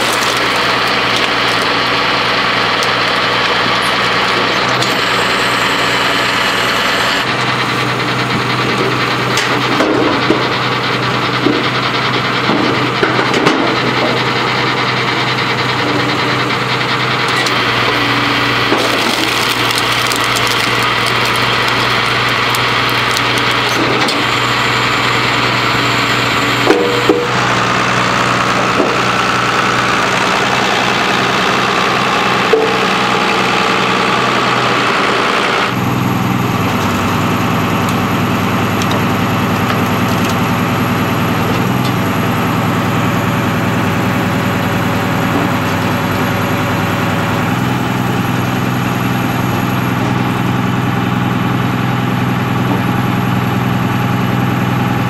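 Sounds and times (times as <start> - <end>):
logs cracking as they split: 0.0 - 6.8, 17.4 - 27.3, 36.4 - 49.8
tractor diesel engine running: 0.0 - 55.0.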